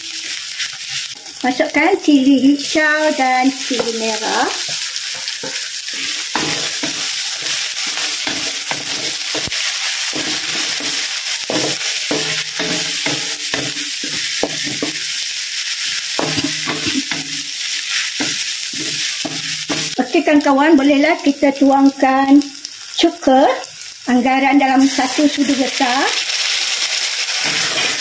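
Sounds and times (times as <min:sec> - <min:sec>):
food sizzling in hot oil: 0:00.0 - 0:28.0
wooden spatula scraping a wok: 0:00.2 - 0:01.4, 0:02.6 - 0:20.0, 0:26.9 - 0:28.0.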